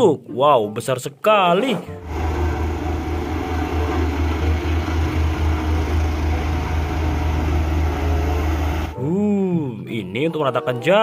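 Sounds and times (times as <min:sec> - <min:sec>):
road roller diesel engine: 0:02.0 - 0:09.0.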